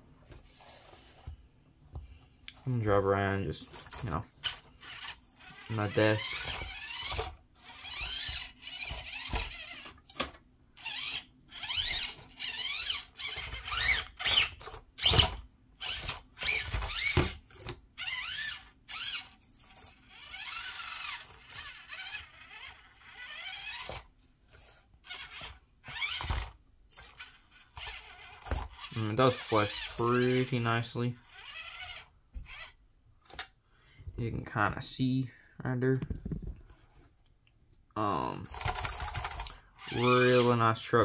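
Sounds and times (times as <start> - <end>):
toy car motor whining: 3.5 - 33.5, 38.1 - 41.0.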